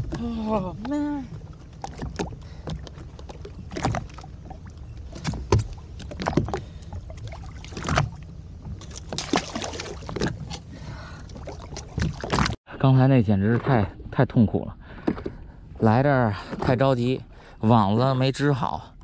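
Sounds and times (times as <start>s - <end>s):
low engine rumble: 0.0s - 12.3s
water splashes: 0.0s - 12.6s.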